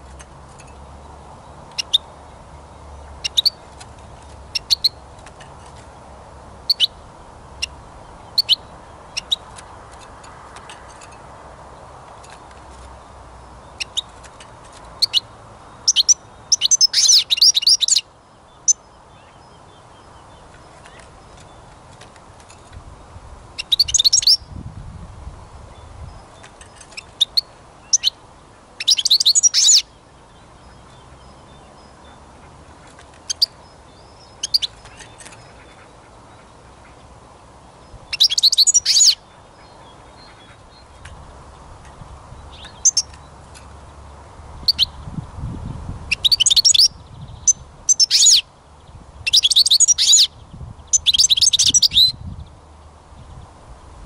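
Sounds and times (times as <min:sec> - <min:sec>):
rapid bird twittering song: 0:00.0 - 0:53.7
bird chirping call notes: 0:01.7 - 0:02.1, 0:03.2 - 0:03.7, 0:04.5 - 0:05.0, 0:06.7 - 0:07.0, 0:07.6 - 0:09.5, 0:13.7 - 0:14.2, 0:15.0 - 0:21.6, 0:23.6 - 0:24.5, 0:28.8 - 0:30.0, 0:33.3 - 0:35.8, 0:38.1 - 0:40.9, 0:42.4 - 0:43.3, 0:44.6 - 0:45.0, 0:46.1 - 0:48.5, 0:49.3 - 0:52.2.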